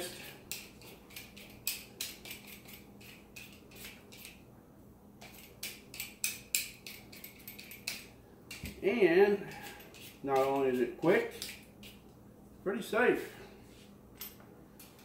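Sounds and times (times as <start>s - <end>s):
peeler scraping potato skin: 0.0s - 4.4s, 9.4s - 12.0s.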